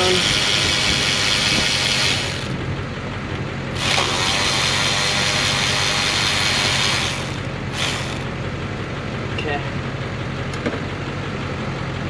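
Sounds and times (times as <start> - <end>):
power tool hissing: 0.0 - 2.5, 3.8 - 8.3
steady low hum: 0.0 - 12.0.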